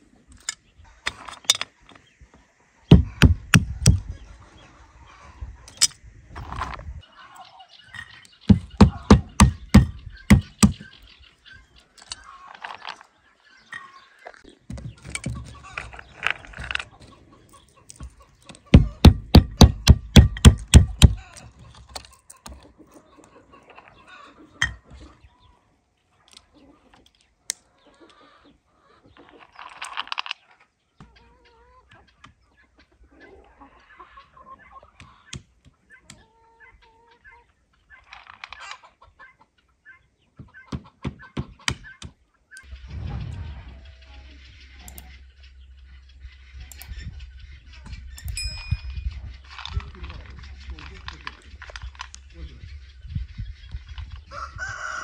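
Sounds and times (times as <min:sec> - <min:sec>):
chickens clucking: 0:00.0 - 0:55.0
stone cracking walnuts on wood: 0:00.4 - 0:01.8, 0:02.9 - 0:04.0, 0:08.3 - 0:10.9, 0:17.8 - 0:22.6.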